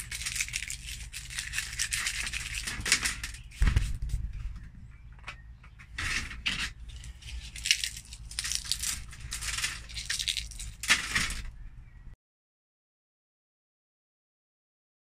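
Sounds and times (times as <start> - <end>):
dry plant matter rattling on metal: 0.0 - 4.4, 5.9 - 11.5
low hum: 0.0 - 12.2.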